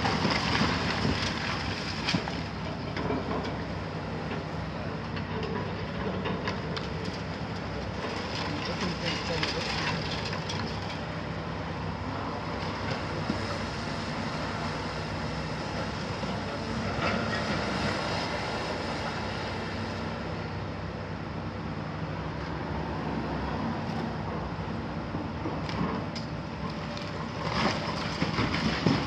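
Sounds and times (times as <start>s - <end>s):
excavator diesel engine running: 0.0s - 29.0s
concrete rubble crunching: 8.0s - 11.1s.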